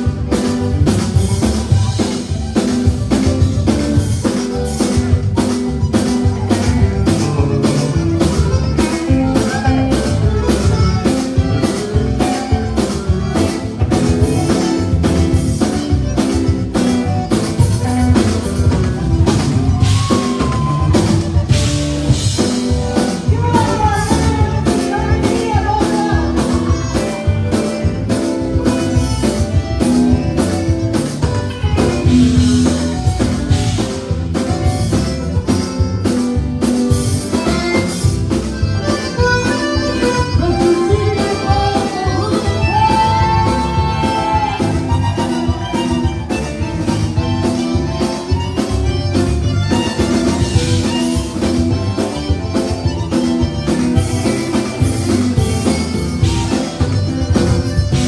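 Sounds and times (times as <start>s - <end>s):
bass and guitars: 0.0s - 58.0s
button accordions melody: 0.0s - 58.0s
drum kit beat: 0.0s - 58.0s
woman singing: 23.2s - 27.2s, 40.1s - 44.8s.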